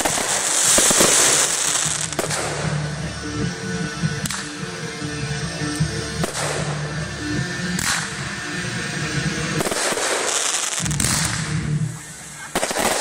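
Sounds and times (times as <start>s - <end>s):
fireworks bangs: 0.0s - 3.0s, 6.2s - 6.9s, 7.8s - 8.2s, 9.5s - 13.0s
fireworks fountains hissing: 0.0s - 13.0s
music: 0.0s - 13.0s.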